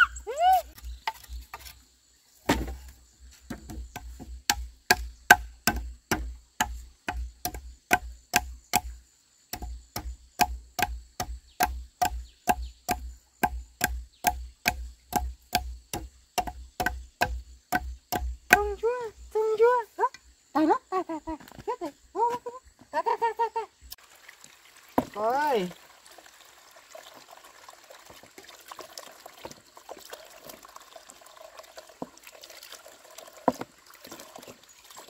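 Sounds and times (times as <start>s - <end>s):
knife chopping bamboo: 2.5s - 2.8s, 3.5s - 8.9s, 9.5s - 18.7s.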